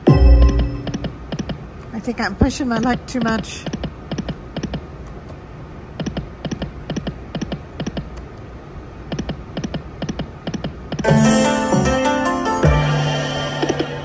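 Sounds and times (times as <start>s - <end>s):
music with held notes: 11.0s - 14.0s.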